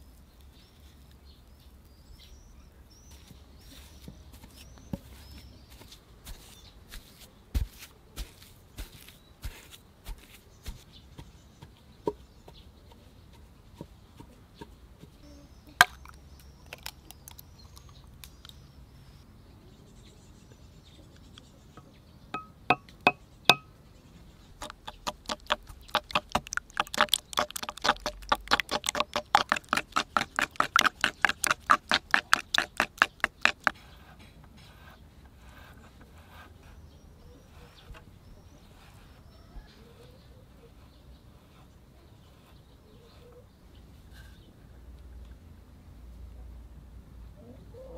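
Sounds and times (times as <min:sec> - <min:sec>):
spoon beating in ceramic bowl: 0:22.4 - 0:23.7, 0:24.6 - 0:33.7.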